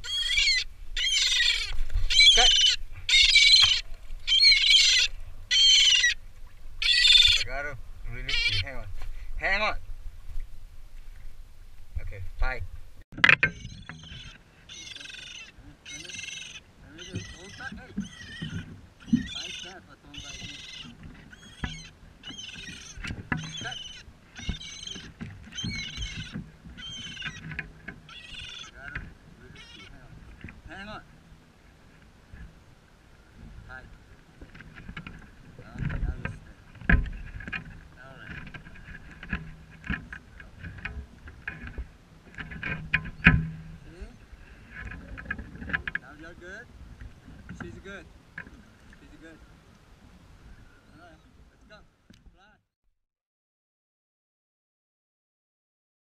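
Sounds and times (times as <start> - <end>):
gull squawking: 0.0 - 6.2, 6.8 - 8.8, 13.4 - 30.1
seabirds crying: 0.0 - 9.4, 13.4 - 31.6.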